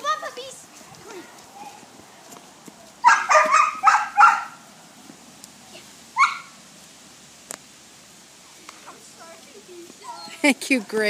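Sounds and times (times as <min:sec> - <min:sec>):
puppies yapping: 0:03.0 - 0:04.6, 0:06.2 - 0:06.6.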